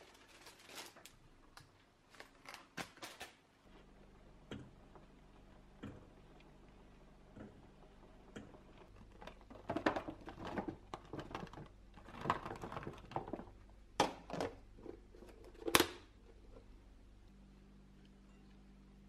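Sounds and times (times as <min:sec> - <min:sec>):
plastic packaging crinkling: 0:00.0 - 0:03.4.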